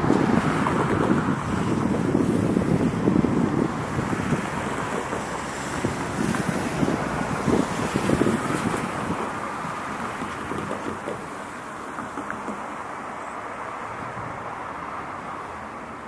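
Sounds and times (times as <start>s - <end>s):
wind buffeting the microphone: 0.0s - 11.4s, 13.9s - 14.5s.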